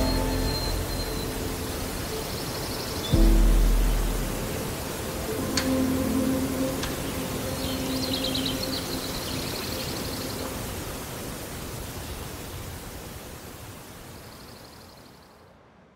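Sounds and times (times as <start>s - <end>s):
high chirping trill: 0.0s - 4.7s
low music drone: 0.0s - 10.8s.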